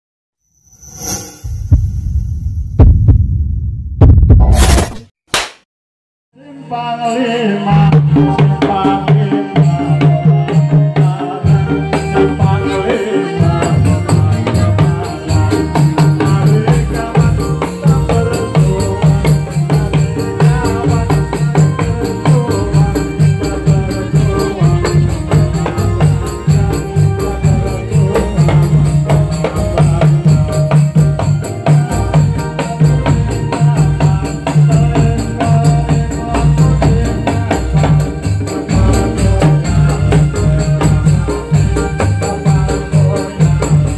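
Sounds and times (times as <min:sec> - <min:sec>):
deep bass drum: 0:01.5 - 0:04.6
jingling tambourine: 0:07.0 - 0:43.9
drum ensemble rhythm: 0:07.8 - 0:43.9.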